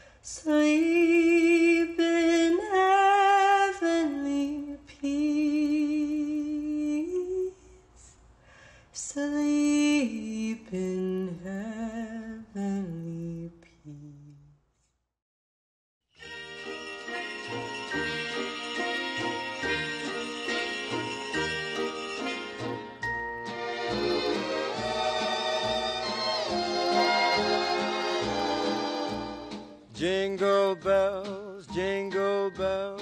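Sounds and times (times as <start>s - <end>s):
woman singing with vibrato: 0.3s - 7.8s.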